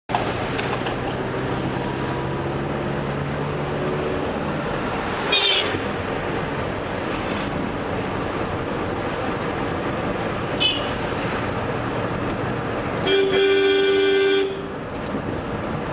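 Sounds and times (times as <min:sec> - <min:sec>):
car engine and road noise: 0:00.0 - 0:15.9
car horn honk: 0:05.3 - 0:05.8, 0:10.6 - 0:11.0, 0:13.0 - 0:14.8.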